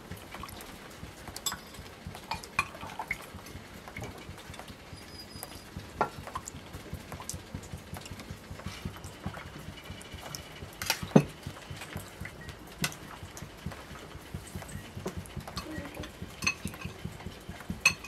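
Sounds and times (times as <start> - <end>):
cutlery clinking on plates: 1.5 - 2.7, 15.6 - 17.0.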